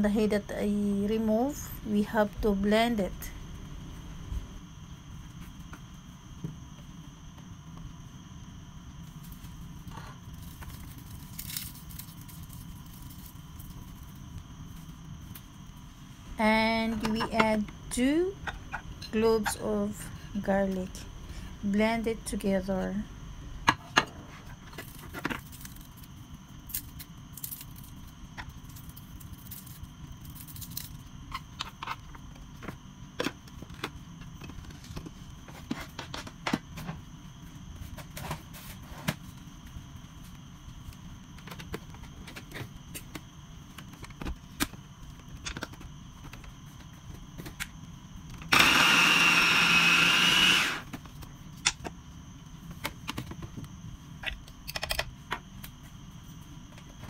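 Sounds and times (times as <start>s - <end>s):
electric chopper motor running: 48.5s - 50.9s.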